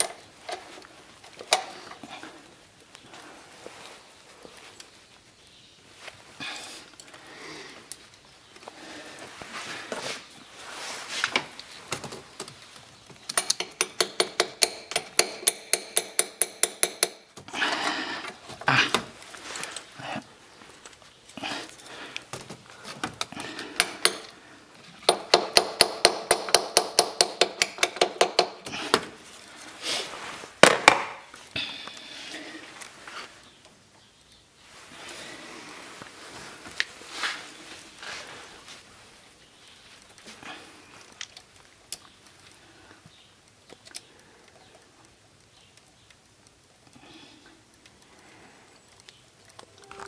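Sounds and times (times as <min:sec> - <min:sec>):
faint rustling: 0:00.0 - 0:13.3, 0:17.6 - 0:25.0, 0:29.1 - 0:30.6, 0:31.2 - 0:46.7
sharp small clicks: 0:41.0 - 0:50.0.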